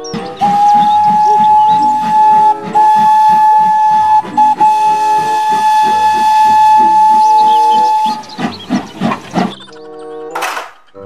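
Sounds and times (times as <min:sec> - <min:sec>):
steam locomotive whistle blasts: 0:00.0 - 0:09.6.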